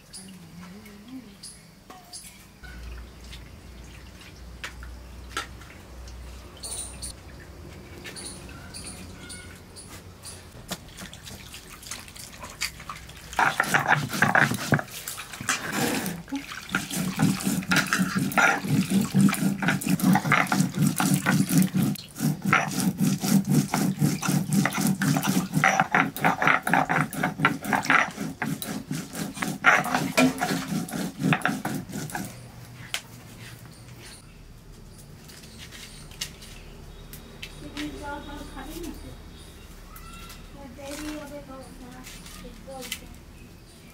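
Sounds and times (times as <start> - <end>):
stone roller grinding seeds: 13.4 - 32.5.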